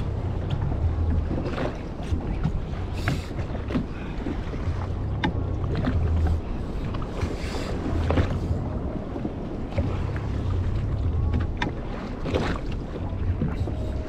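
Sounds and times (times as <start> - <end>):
water slapping against hull: 0.0 - 14.0
wind buffeting microphone: 0.0 - 14.0.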